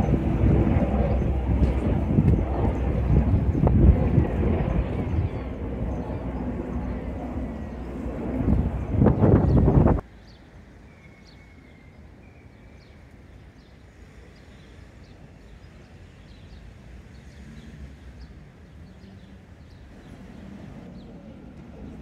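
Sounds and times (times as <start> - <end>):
low rumble: 0.0 - 10.0
small birds chirping: 0.0 - 22.0.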